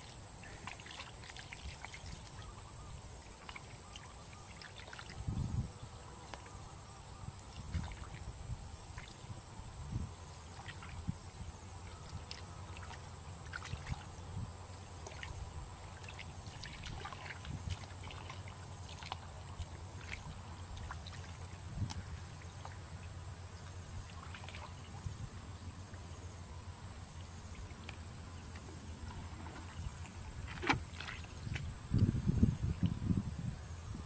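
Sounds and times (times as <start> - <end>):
hands sloshing in muddy water: 0.0 - 5.4, 7.3 - 9.5, 10.4 - 26.0, 27.3 - 32.0
small splashes and drips: 0.0 - 5.4, 6.2 - 6.6, 7.3 - 9.5, 10.4 - 25.2, 27.1 - 33.1.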